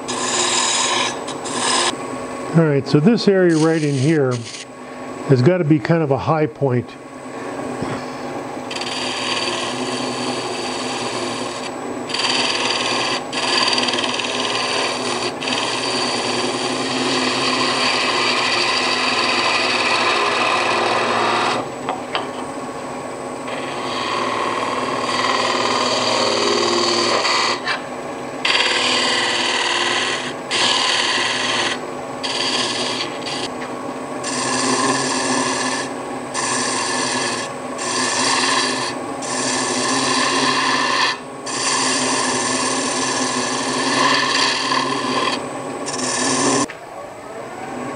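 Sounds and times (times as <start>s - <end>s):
gouge scraping wood on lathe: 0.0s - 2.0s, 3.1s - 4.7s, 8.7s - 21.7s, 23.5s - 27.8s, 28.4s - 33.5s, 34.2s - 46.7s
lathe humming: 0.0s - 46.7s.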